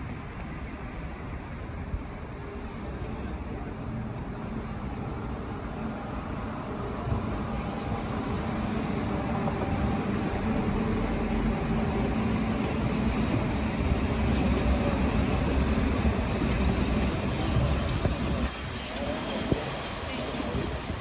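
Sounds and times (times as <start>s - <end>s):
low train hum: 0.0s - 21.0s
train wheels rumbling on rails: 0.0s - 21.0s.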